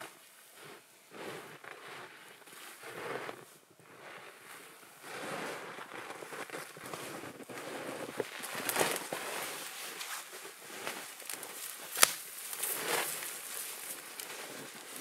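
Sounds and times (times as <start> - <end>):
footsteps in deep snow: 0.0 - 15.0
swish of branches shedding snow: 0.0 - 15.0
sharp crack: 10.8 - 14.5.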